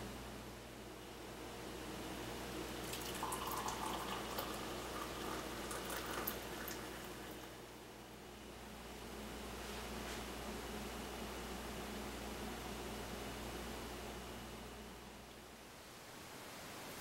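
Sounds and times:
coffee pouring into a mug: 2.8 - 7.6.

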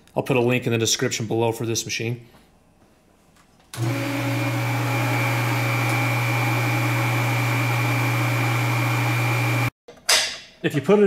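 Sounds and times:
welder machine hum: 3.8 - 9.7.

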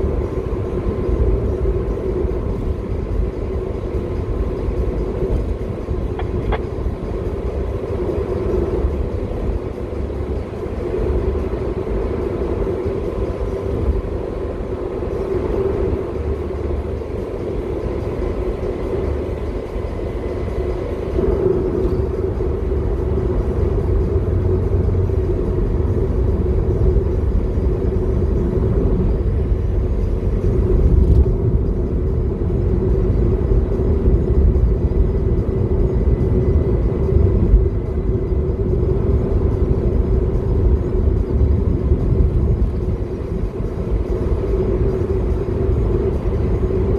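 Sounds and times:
car engine and tyre rumble: 0.0 - 46.9.

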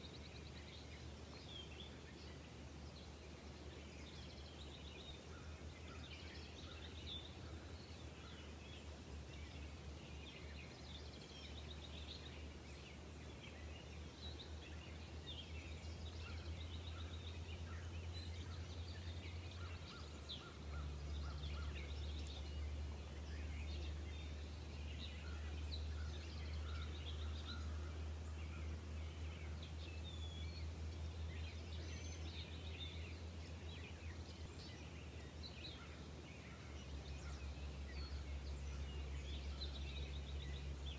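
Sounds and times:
small birds chirping: 0.0 - 40.9.

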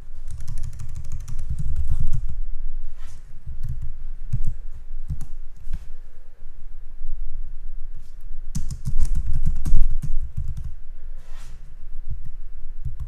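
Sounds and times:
computer keyboard typing: 0.2 - 2.4, 8.6 - 10.7.

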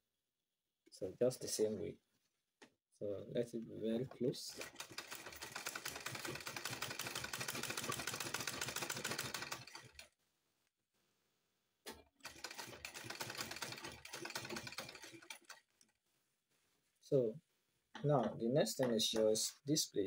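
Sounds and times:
sewing machine clattering: 4.5 - 10.1, 11.9 - 15.7.

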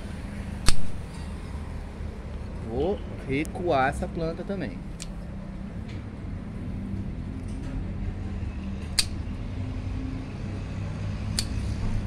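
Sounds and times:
pruning shears snipping branch: 0.6 - 1.0, 9.0 - 9.2, 11.3 - 11.9.

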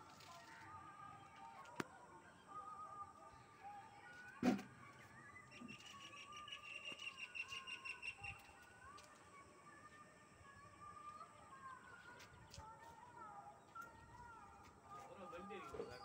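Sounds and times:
birds chirping and calling: 4.9 - 8.6, 15.0 - 16.0.

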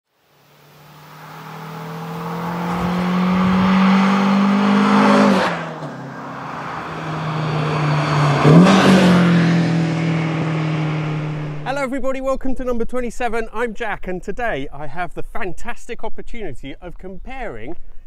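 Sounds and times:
car engine passing by: 0.3 - 11.7
second car passing loudly: 0.4 - 11.7.

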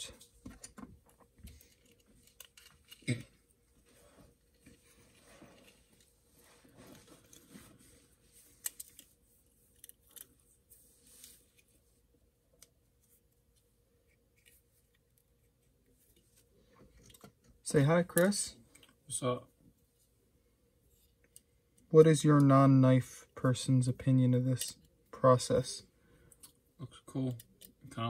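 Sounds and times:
small metal parts clicking: 1.5 - 3.1, 9.7 - 10.3.

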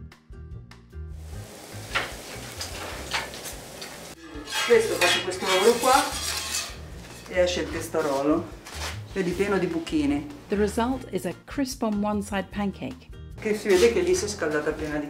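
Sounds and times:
metal pans clinking and scraping: 1.9 - 9.0
woman speaking: 9.2 - 15.0.

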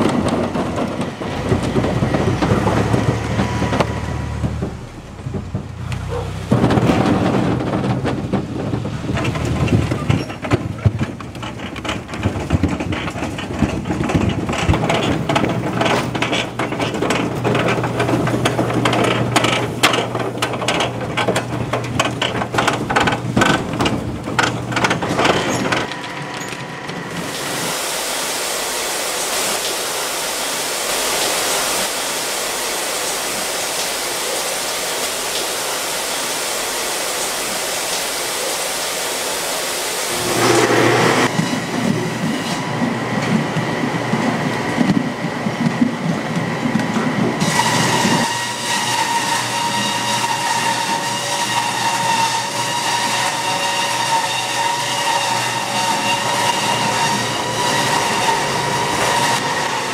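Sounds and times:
apples knocking on conveyor: 0.0 - 26.2
machine hum: 39.9 - 43.3.

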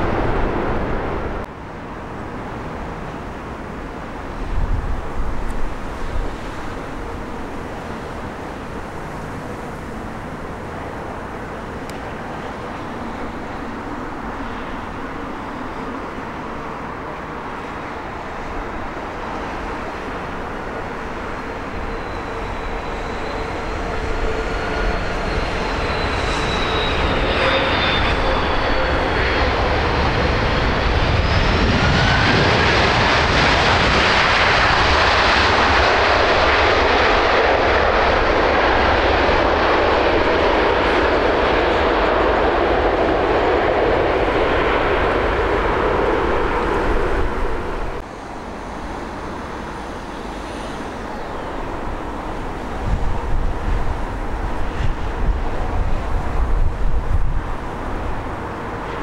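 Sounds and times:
airliner engine whine: 0.0 - 59.0
jet reverse thrust roar: 21.7 - 48.1.

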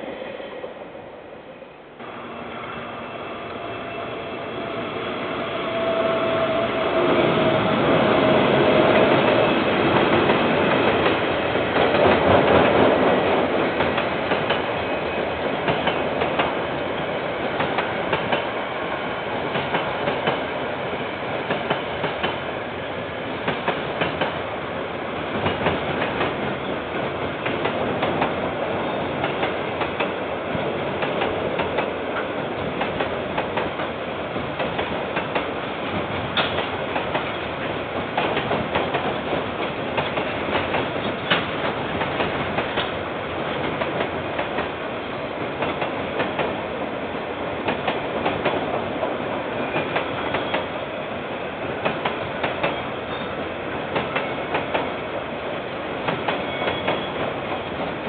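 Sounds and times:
train wheels clicking on rail joints: 8.8 - 18.6, 19.4 - 20.5, 21.4 - 22.4, 23.4 - 24.4, 25.3 - 44.8, 45.4 - 46.6, 47.6 - 50.8, 51.6 - 55.0, 56.0 - 58.0.

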